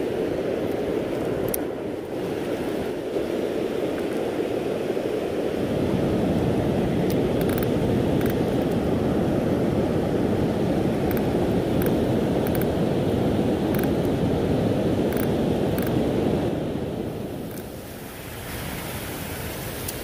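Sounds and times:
river water rushing: 0.0s - 20.0s
faint ticks: 11.1s - 12.7s.

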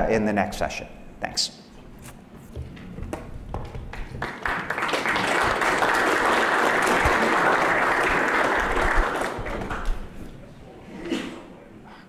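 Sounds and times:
audience applause: 3.7s - 10.2s.

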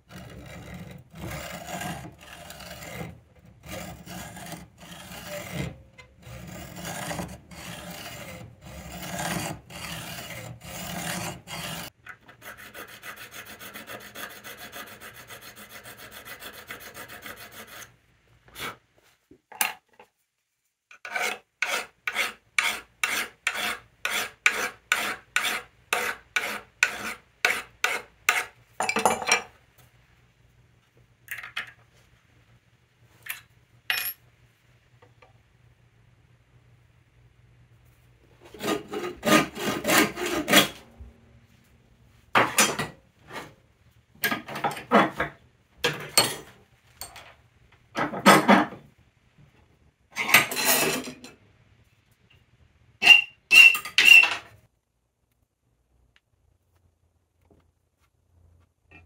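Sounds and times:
hacksaw cutting metal rod: 0.1s - 11.9s, 20.9s - 28.5s, 38.6s - 40.8s
file strokes on metal: 0.1s - 18.8s, 20.9s - 28.6s, 38.4s - 41.0s.

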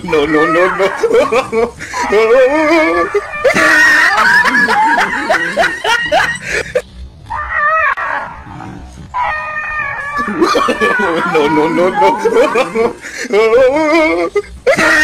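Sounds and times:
dog barking and yelping: 0.0s - 6.5s, 9.2s - 13.0s.

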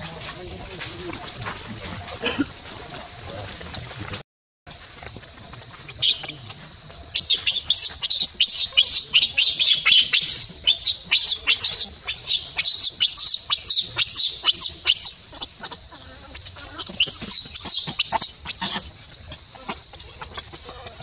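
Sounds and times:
baby monkey screaming and crying: 7.2s - 20.5s.

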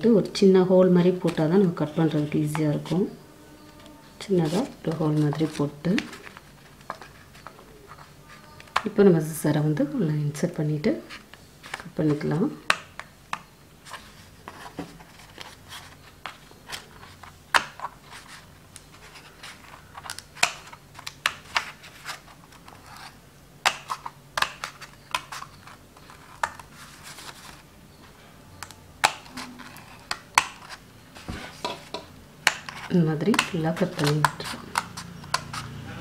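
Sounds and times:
scissors snipping paper: 32.4s - 35.8s.

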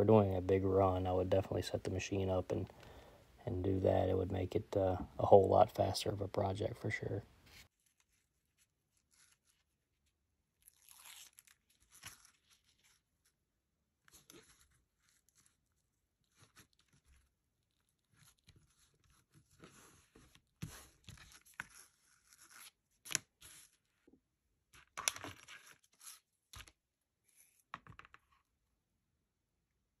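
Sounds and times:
fabric rubbing and crinkling: 7.4s - 13.4s.

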